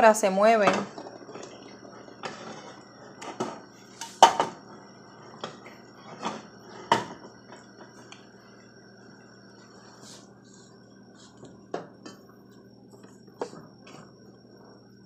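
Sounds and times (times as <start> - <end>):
syrup bubbling: 0.9 - 3.2.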